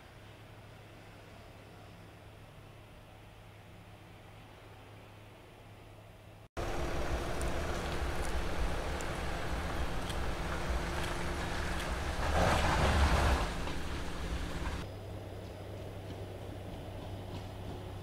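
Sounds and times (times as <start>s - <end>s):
faint hum: 0.0s - 18.0s
tyres and spray in wet sand: 6.6s - 14.8s
off-road vehicle engine under load: 6.6s - 15.0s.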